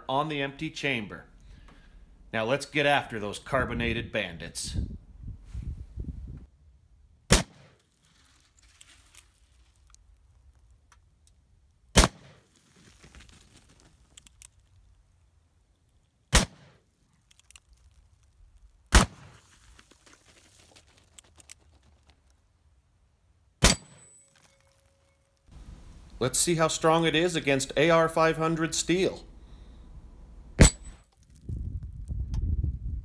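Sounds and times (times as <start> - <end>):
revolver shots: 12.0 - 12.4, 18.9 - 19.4.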